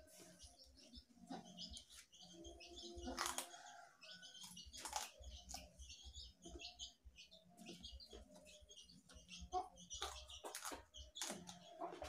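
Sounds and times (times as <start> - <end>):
person chewing leafy greens: 3.0 - 3.8, 4.4 - 5.8, 10.0 - 12.0.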